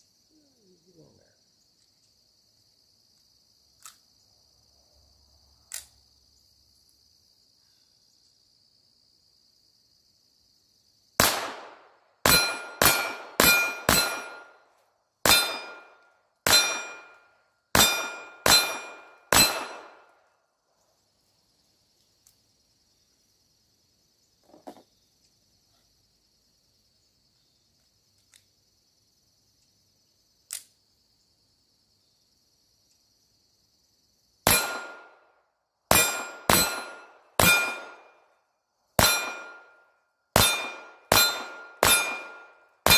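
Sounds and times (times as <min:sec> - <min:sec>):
crickets chirping: 0:00.0 - 0:42.9
pistol shots: 0:11.2 - 0:14.6, 0:15.2 - 0:20.2, 0:34.5 - 0:35.2, 0:35.9 - 0:38.2, 0:39.0 - 0:39.8, 0:40.4 - 0:42.9
ringing ping of steel target: 0:12.3 - 0:14.6, 0:15.3 - 0:17.2, 0:17.8 - 0:19.9, 0:34.5 - 0:35.1, 0:35.9 - 0:38.1, 0:39.0 - 0:39.8, 0:40.4 - 0:42.9.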